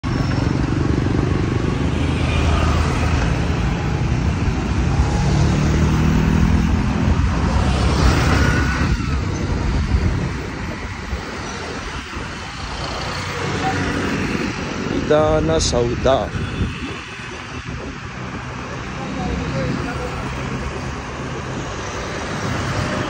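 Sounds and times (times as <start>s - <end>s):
motorcycles and scooters rumbling: 0.0s - 23.0s.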